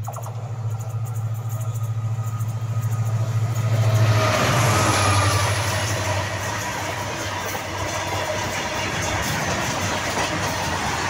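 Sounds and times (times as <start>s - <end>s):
diesel locomotive engine throbbing: 0.0s - 11.0s
train rushing rumble: 0.0s - 11.0s.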